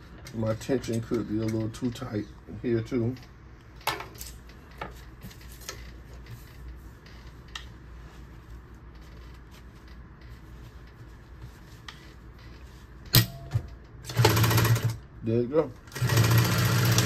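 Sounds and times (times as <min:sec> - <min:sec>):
fabric handling: 0:04.6 - 0:13.0
sewing machine stitching: 0:14.1 - 0:15.0, 0:15.9 - 0:17.0.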